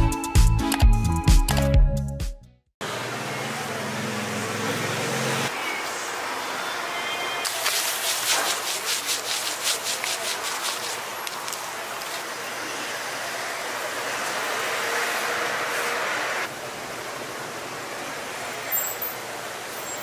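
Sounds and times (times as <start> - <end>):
frying hiss: 7.4 - 14.1
rhythmic scraping on griddle: 7.5 - 11.2.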